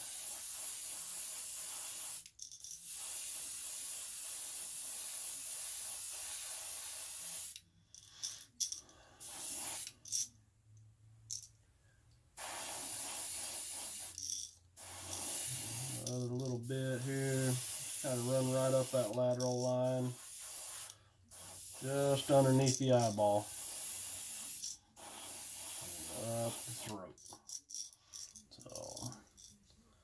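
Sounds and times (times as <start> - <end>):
airbrush spraying paint: 0.0 - 10.2, 12.4 - 27.0.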